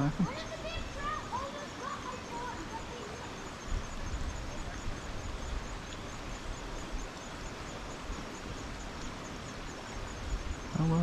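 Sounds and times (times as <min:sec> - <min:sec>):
creek water flowing: 0:00.0 - 0:11.0
wind rumble on microphone: 0:02.8 - 0:11.0.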